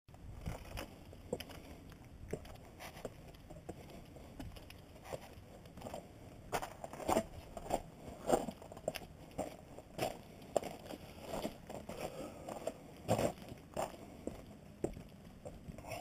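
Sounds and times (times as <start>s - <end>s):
footsteps crunching on gravel: 2.3s - 15.1s.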